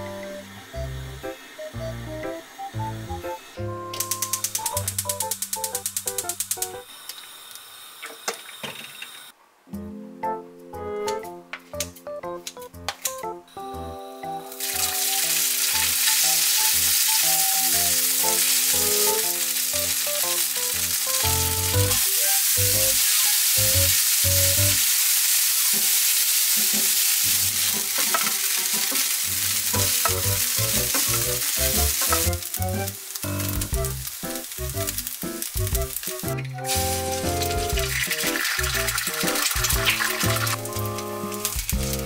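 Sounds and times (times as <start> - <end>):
light background music: 0.0 - 6.9, 9.7 - 24.8, 27.4 - 42.0
food sizzling in a frying pan: 0.0 - 9.3, 13.7 - 42.0
spatula stir-frying: 14.4 - 42.0.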